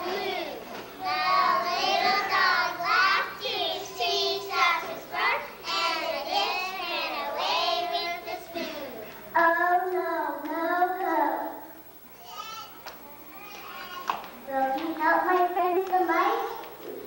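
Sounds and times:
children singing together: 0.0s - 9.1s.

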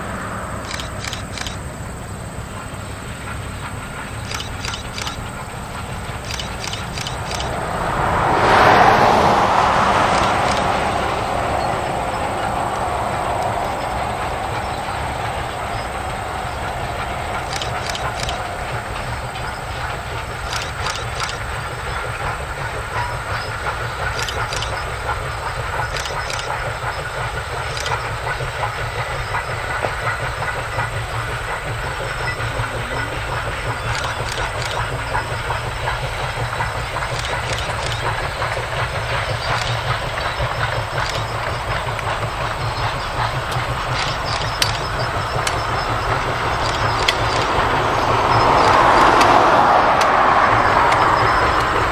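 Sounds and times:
distant steam train rumbling: 0.0s - 51.9s
sharp clicks: 0.6s - 1.6s, 4.2s - 7.6s, 10.0s - 10.9s, 16.6s - 22.0s, 24.0s - 28.4s, 33.3s - 51.9s.

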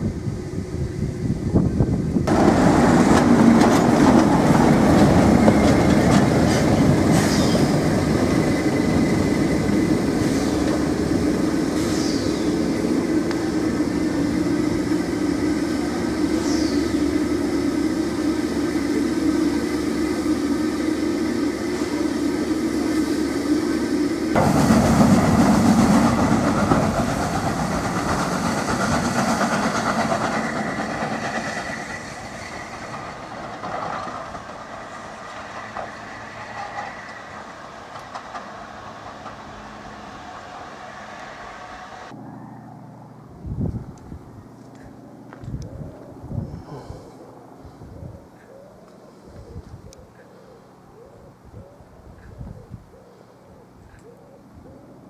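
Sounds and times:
steam locomotive running: 0.0s - 42.2s.

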